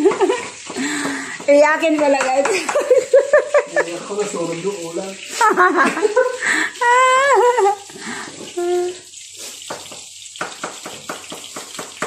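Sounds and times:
person's wavering voice: 0:08.6 - 0:09.0
knife chopping on cutting board: 0:09.7 - 0:12.0.

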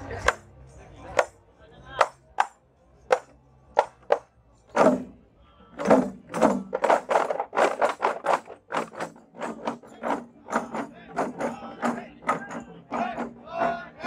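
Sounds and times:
frame drums beating: 0:05.8 - 0:14.0.

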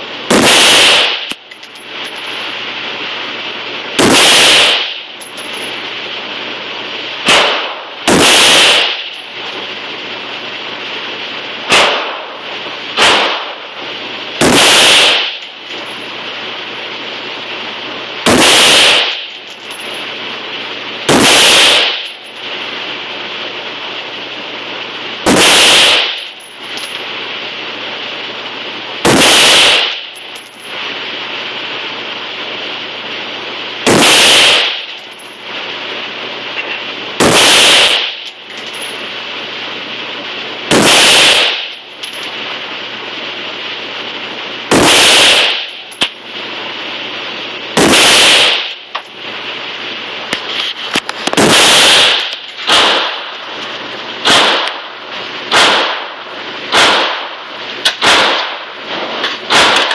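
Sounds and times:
steady background noise: 0:00.0 - 0:59.9
rifle shots echoing: 0:51.5 - 0:53.2.

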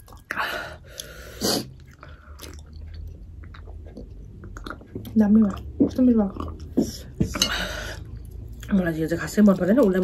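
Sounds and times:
mouth chewing with smacks: 0:00.0 - 0:07.4.

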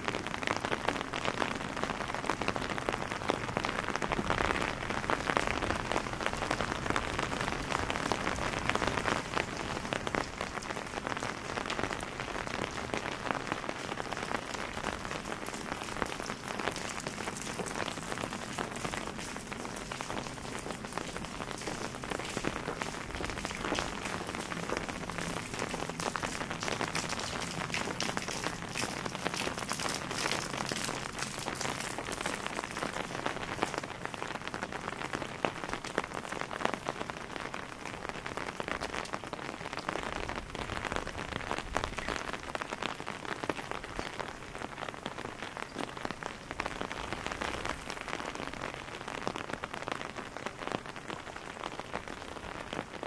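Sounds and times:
rain on cobblestones: 0:00.0 - 0:53.0
water drips and splashes: 0:00.2 - 0:36.9.

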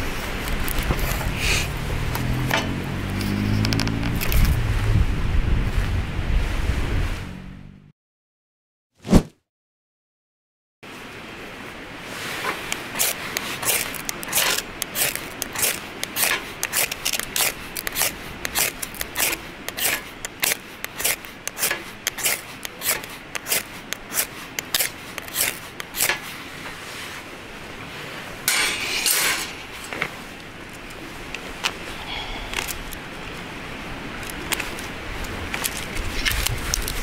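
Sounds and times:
fire-starter rod scraping: 0:00.3 - 0:04.6, 0:12.4 - 0:26.3, 0:28.5 - 0:31.0, 0:34.3 - 0:37.0.

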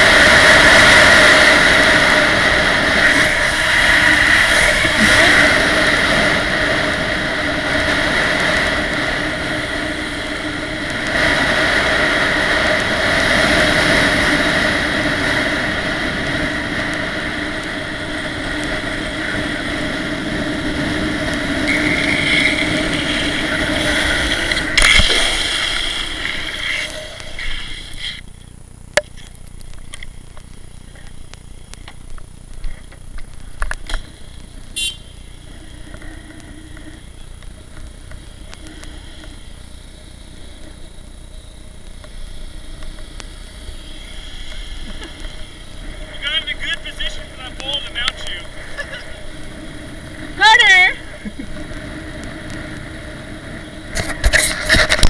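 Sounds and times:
wind rushing over microphone: 0:00.0 - 0:28.2, 0:42.7 - 0:55.0
longboard wheels rolling on asphalt: 0:00.0 - 0:55.0.

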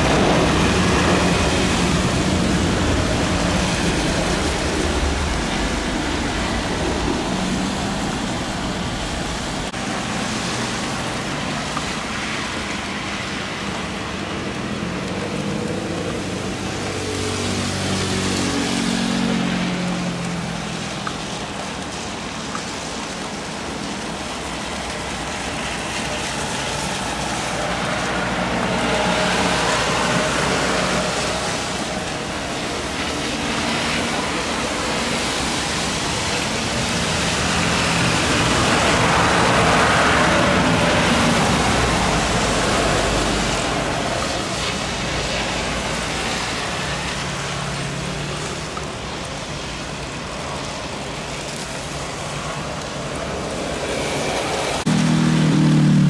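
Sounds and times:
jet engine noise: 0:00.0 - 0:15.6, 0:48.9 - 0:55.2
hiss of water spray: 0:00.0 - 0:55.1.

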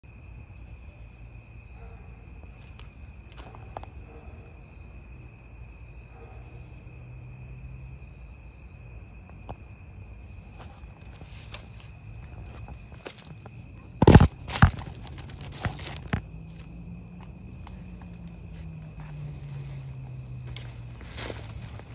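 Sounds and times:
crickets trilling: 0:00.0 - 0:21.9
pulsing higher insect trill: 0:00.0 - 0:21.9
footsteps crunching dry leaves: 0:10.4 - 0:21.9.

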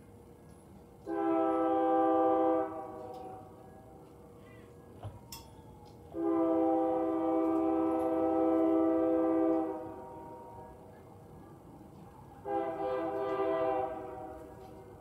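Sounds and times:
locomotive horn blasts: 0:01.0 - 0:03.6, 0:06.1 - 0:10.6, 0:12.4 - 0:15.0.

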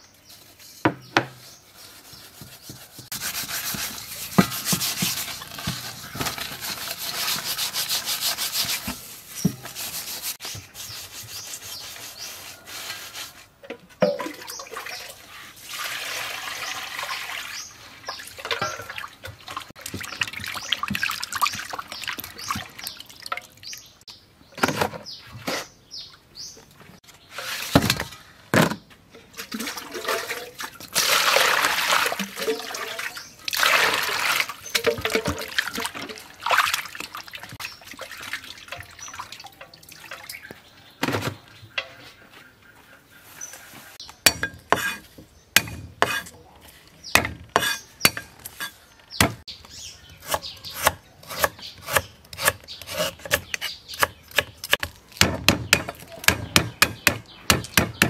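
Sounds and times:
water pouring and splashing: 0:02.5 - 0:10.7, 0:14.0 - 0:24.0, 0:29.3 - 0:40.8
knife chopping on wooden board: 0:50.2 - 0:58.0.

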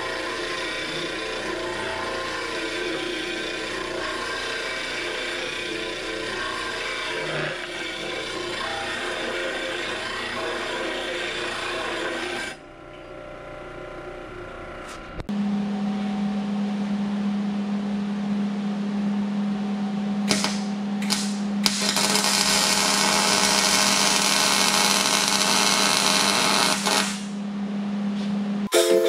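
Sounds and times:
disc sander grinding steel: 0:00.0 - 0:12.6, 0:20.3 - 0:27.4
steady low hum: 0:00.0 - 0:28.7
welding sputtering and crackling: 0:20.3 - 0:27.4.

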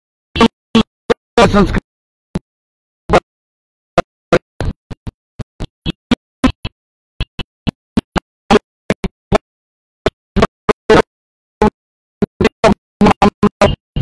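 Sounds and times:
man's voice in clipped fragments: 0:01.4 - 0:01.8.

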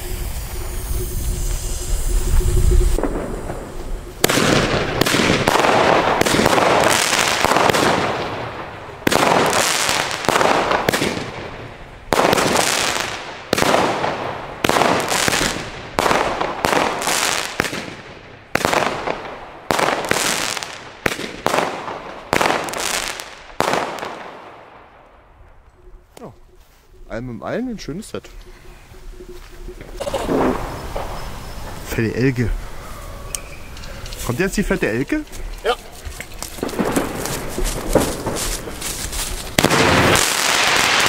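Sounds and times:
firework battery reports: 0:00.0 - 0:08.1, 0:26.2 - 0:32.8, 0:33.6 - 0:41.0.

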